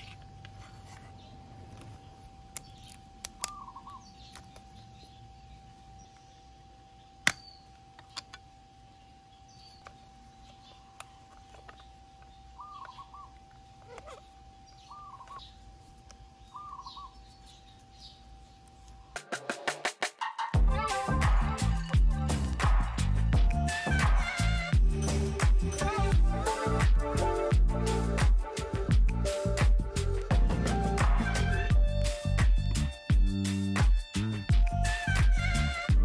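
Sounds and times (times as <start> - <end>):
bird chirping: 1.1 - 19.0.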